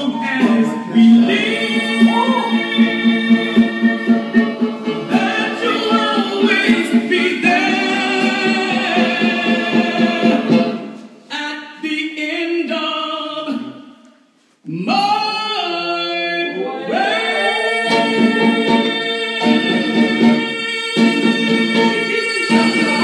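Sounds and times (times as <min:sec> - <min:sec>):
voices singing together: 0:00.0 - 0:11.0, 0:16.2 - 0:23.0.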